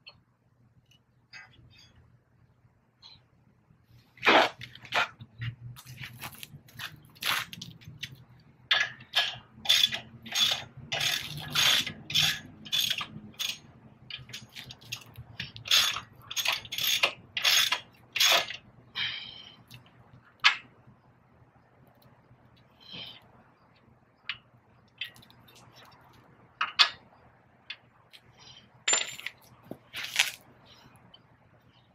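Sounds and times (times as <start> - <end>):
metal clicks and scrapes: 4.2 - 18.6.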